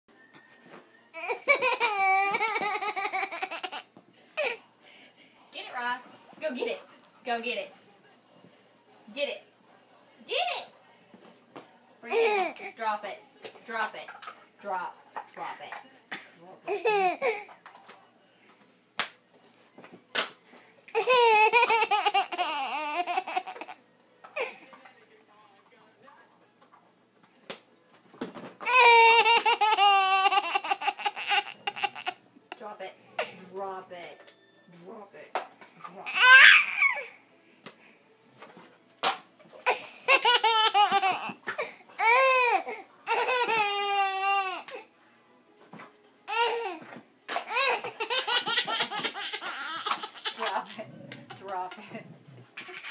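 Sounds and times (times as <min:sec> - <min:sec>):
baby laughing: 0:01.2 - 0:04.6, 0:21.0 - 0:23.8, 0:28.7 - 0:32.2, 0:39.6 - 0:44.6, 0:47.4 - 0:51.9, 0:52.6 - 0:52.9.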